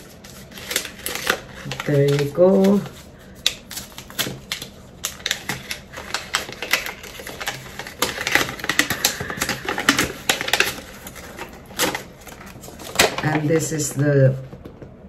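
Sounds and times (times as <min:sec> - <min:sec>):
paper packaging rustling: 0:00.0 - 0:14.7.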